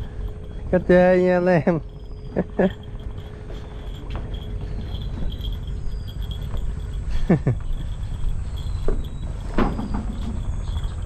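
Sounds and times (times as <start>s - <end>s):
insects chirping: 0.0s - 11.0s
low constant rumble: 0.0s - 11.0s
loud falling squeaks: 8.0s - 11.0s.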